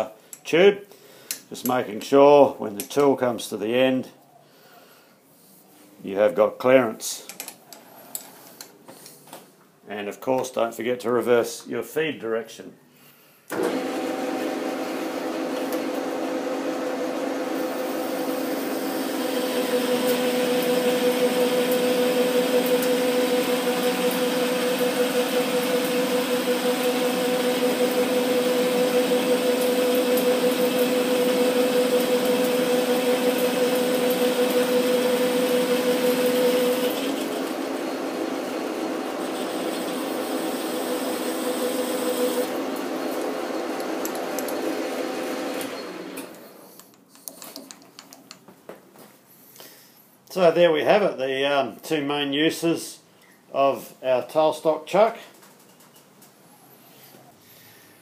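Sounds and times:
metal lathe whining: 17.5s - 46.3s.

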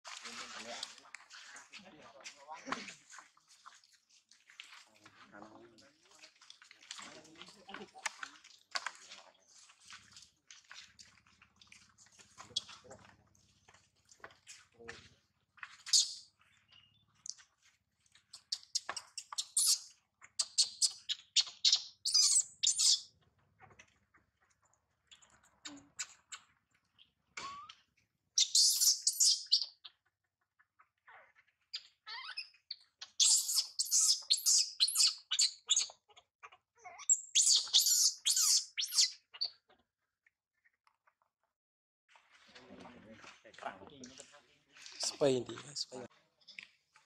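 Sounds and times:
infant monkey distress squeals: 20.4s - 23.0s, 27.4s - 27.8s, 28.4s - 29.7s, 32.1s - 32.5s, 33.1s - 39.5s.

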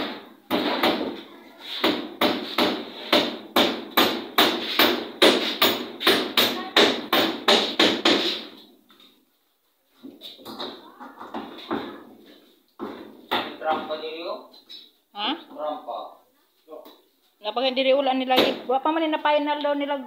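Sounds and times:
hammering on wood: 0.0s - 1.2s, 1.8s - 8.6s, 10.5s - 12.1s, 12.8s - 14.0s.

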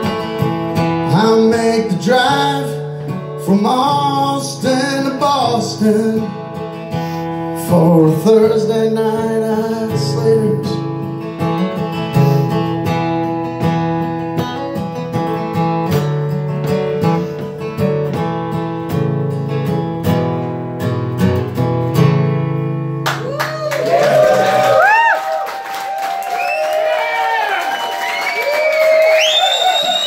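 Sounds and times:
acoustic guitar strumming: 0.0s - 23.1s
audience applause and cheers: 23.1s - 30.0s.

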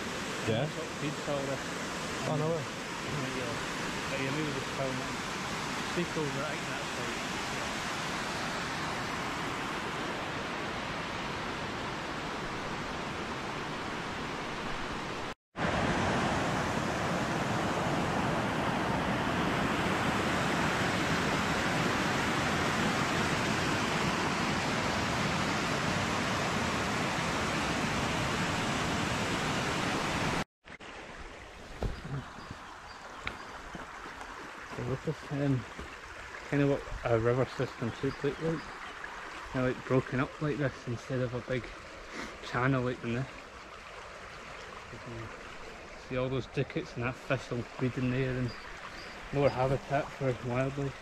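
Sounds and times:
waterfall rushing: 0.0s - 30.4s, 44.9s - 51.0s.

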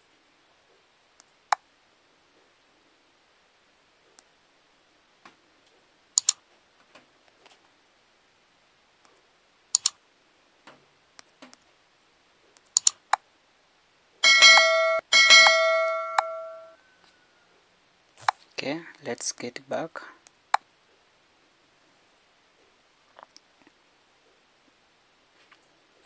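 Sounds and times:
mouse click sound effects: 6.2s - 6.4s
bright bell chime: 14.2s - 16.8s.

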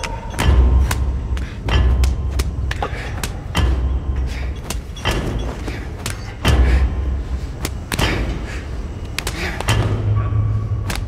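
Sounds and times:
heavy thumps and knocks: 0.0s - 8.5s.

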